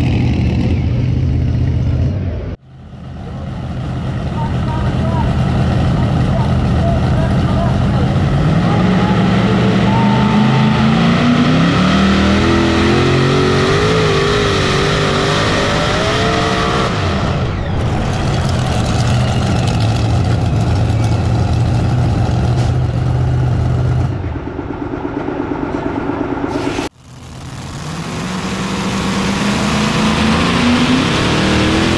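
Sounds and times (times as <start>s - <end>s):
tractor engine revving under load: 4.8s - 24.2s, 26.8s - 31.9s.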